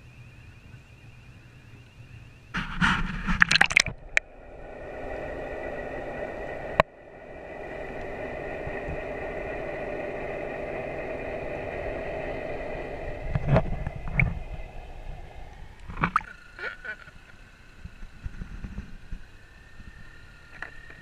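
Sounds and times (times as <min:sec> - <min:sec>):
underwater boat engine hum: 0:00.0 - 0:21.0
water splashing: 0:02.8 - 0:04.3, 0:15.8 - 0:16.8.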